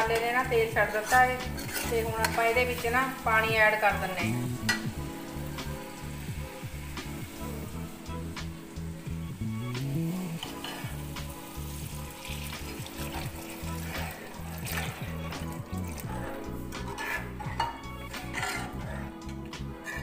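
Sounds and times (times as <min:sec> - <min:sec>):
oil sizzling and bubbling: 0:00.0 - 0:20.0
water poured into hot oil: 0:09.7 - 0:16.4.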